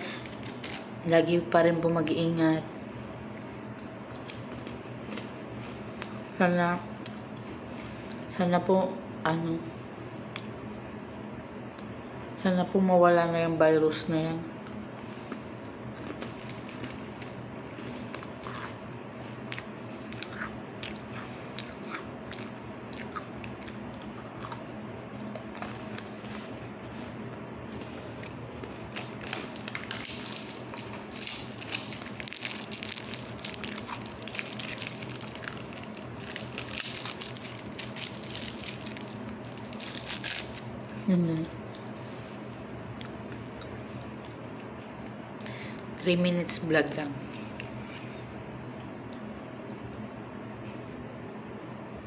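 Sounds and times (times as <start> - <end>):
crunchy cookies being chewed: 0.0 - 0.9, 3.3 - 6.3, 14.6 - 45.1, 47.2 - 47.9
steady low hum: 0.0 - 52.0.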